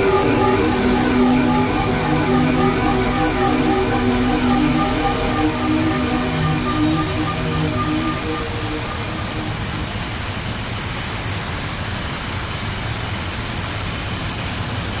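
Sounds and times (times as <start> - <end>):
black metal music: 0.0 - 10.5
static-like noise: 0.0 - 15.0.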